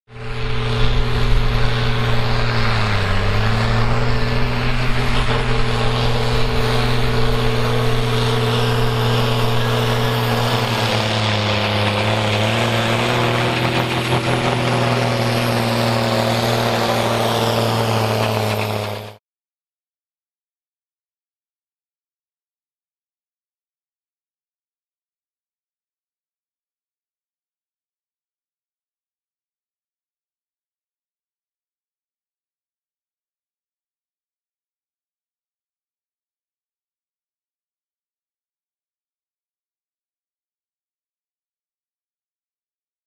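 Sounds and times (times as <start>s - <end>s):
tractor diesel engine under load: 0.1s - 19.2s.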